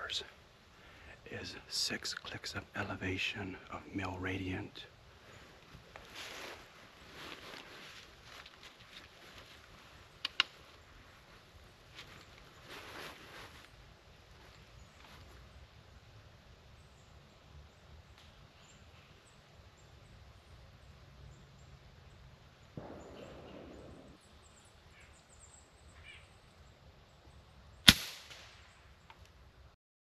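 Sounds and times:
handling rustle: 5.3s - 15.4s
suppressed air rifle shot: 22.8s - 24.2s, 27.9s - 28.7s.

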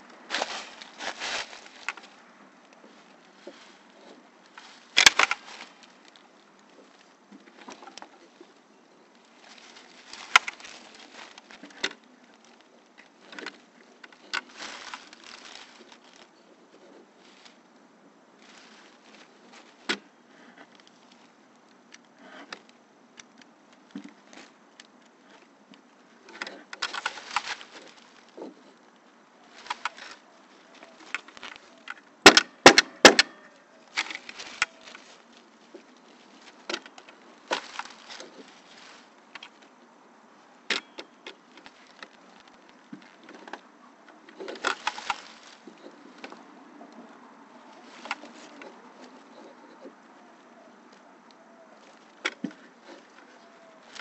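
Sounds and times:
tool and wood handling clicks: 4.6s - 5.8s.

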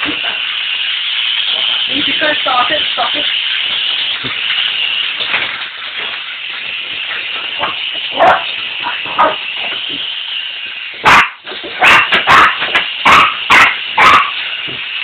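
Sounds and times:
steady high hiss: 0.0s - 15.0s
puppies yipping: 11.1s - 14.4s.

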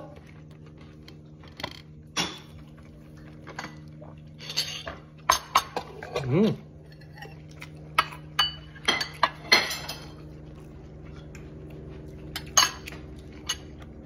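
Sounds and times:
low hum: 0.0s - 14.0s
utensils clinking on plates: 1.5s - 2.8s, 3.4s - 10.3s, 12.2s - 13.9s.

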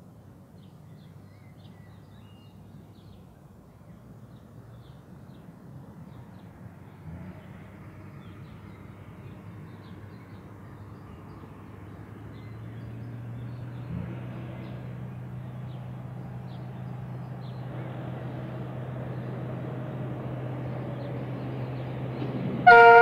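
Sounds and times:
birds chirping: 0.6s - 18.4s
distant diesel engines humming: 2.5s - 23.0s.

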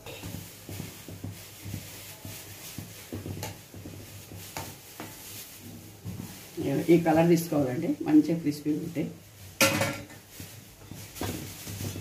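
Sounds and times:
metal spoon scraping a pan: 0.0s - 8.2s
oil sizzling: 0.0s - 12.0s.

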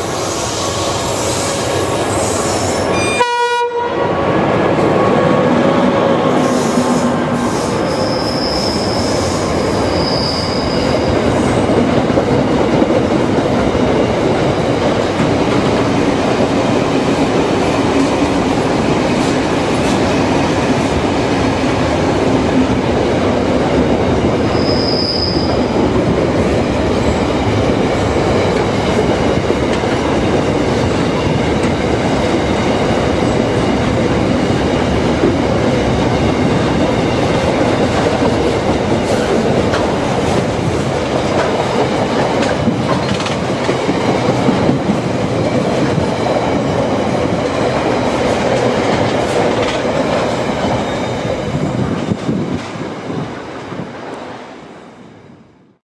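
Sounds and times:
freight train wheels rumbling on rail: 0.0s - 55.8s
high-pitched wheel squeals: 6.5s - 11.1s, 24.5s - 25.7s.

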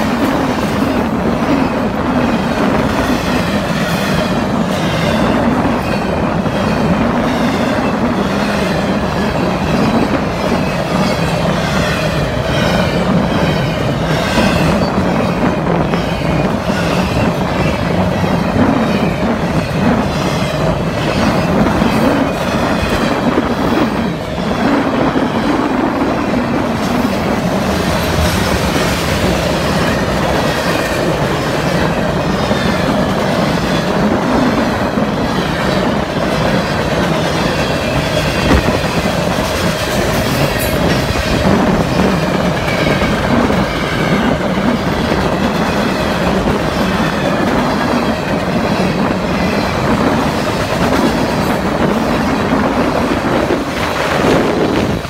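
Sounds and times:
steel wheels clattering on rails: 0.0s - 55.0s
train cars rumbling past: 0.0s - 55.0s.

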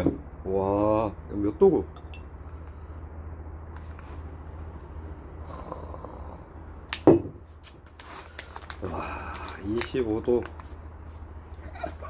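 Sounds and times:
low background hum: 0.0s - 12.0s
glass bottle knocking on wood: 7.1s - 7.4s.

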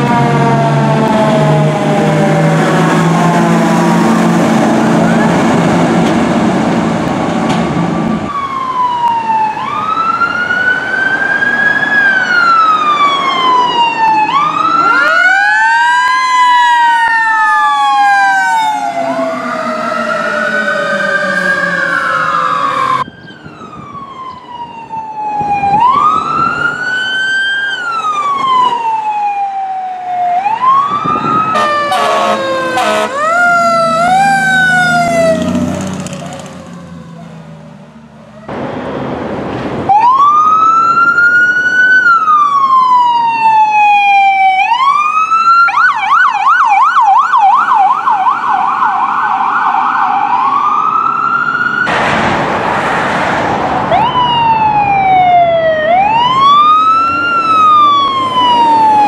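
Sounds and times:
emergency sirens wailing: 0.0s - 59.0s
engine rumble: 30.6s - 43.2s
short horn blasts: 31.6s - 33.2s.

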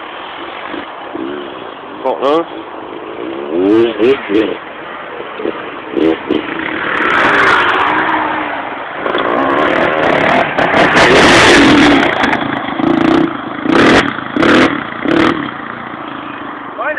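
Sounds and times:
motocross bike engine revving: 3.1s - 4.6s, 5.4s - 8.3s, 9.0s - 15.6s.

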